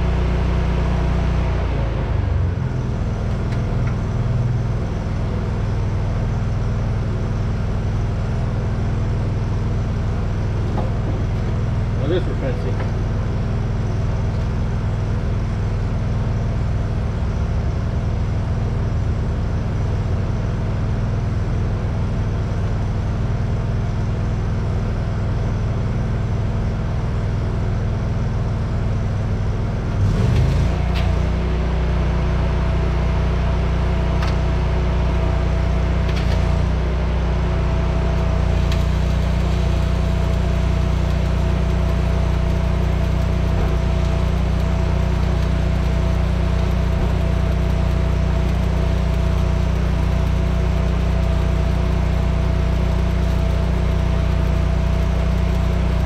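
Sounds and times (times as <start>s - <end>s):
engine running: 0.0s - 20.1s, 26.9s - 56.0s
sharp clicks: 38.6s - 56.0s.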